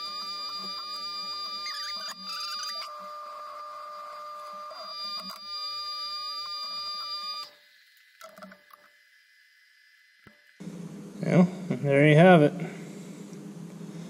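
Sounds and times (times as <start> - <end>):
milling machine whining: 0.0 - 8.4.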